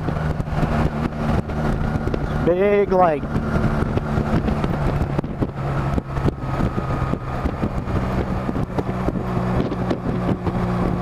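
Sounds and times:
motorcycle engine running: 0.0s - 11.0s
wind on microphone: 0.0s - 11.0s.

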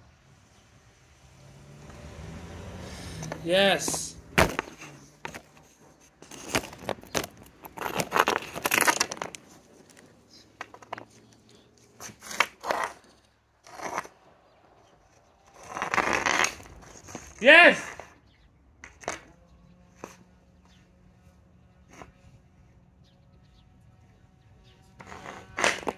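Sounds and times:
hockey stick scraping asphalt: 2.6s - 21.2s, 21.8s - 22.5s, 24.8s - 25.9s.

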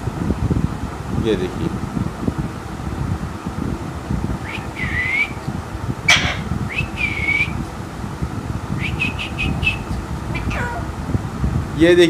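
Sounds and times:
parakeet whistle-like calls: 4.4s - 5.4s, 6.1s - 7.6s, 8.8s - 10.9s
parakeet harsh call: 4.5s - 5.4s, 6.1s - 7.6s, 8.8s - 11.0s
parakeet short chirps: 6.1s - 7.5s.

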